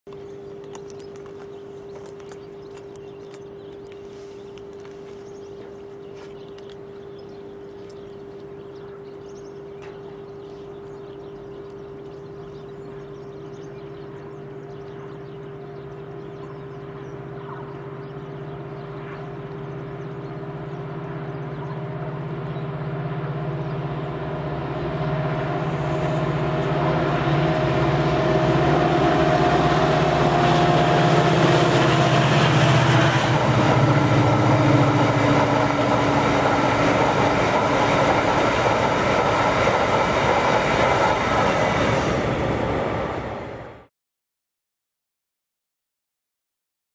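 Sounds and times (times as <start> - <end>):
locomotive engine drone: 0.1 - 43.9
train wheels rolling on rails: 24.7 - 43.8.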